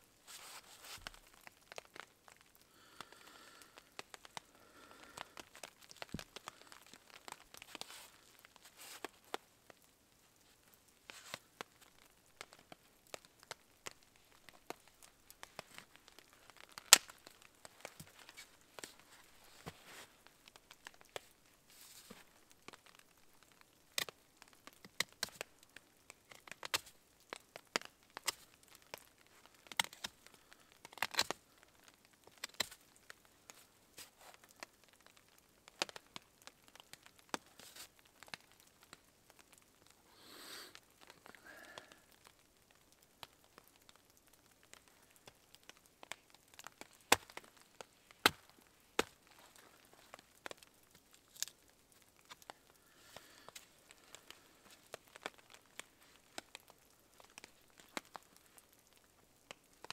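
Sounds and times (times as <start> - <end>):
soft rustle: 0.0 - 59.9.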